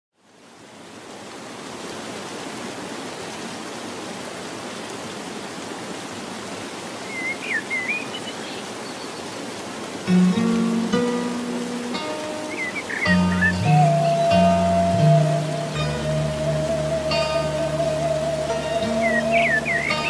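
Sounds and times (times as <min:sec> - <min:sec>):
flowing water rushing: 0:00.2 - 0:20.0
faint bird chirps: 0:07.0 - 0:09.3, 0:12.4 - 0:20.0
bird whistling: 0:07.1 - 0:08.5, 0:12.4 - 0:20.0.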